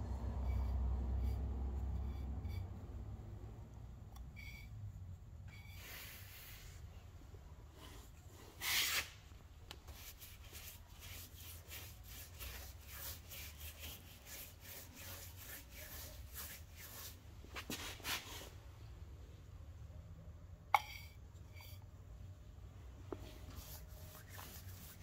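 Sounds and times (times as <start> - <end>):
paintbrush scrubbing on metal: 9.9 - 18.4, 23.3 - 25.0.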